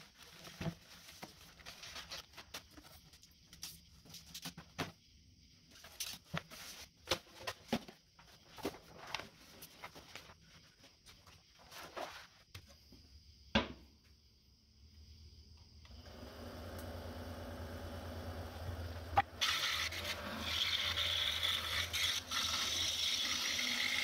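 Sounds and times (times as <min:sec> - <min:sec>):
paper rustling and crackling: 0:00.0 - 0:04.9, 0:05.7 - 0:12.5.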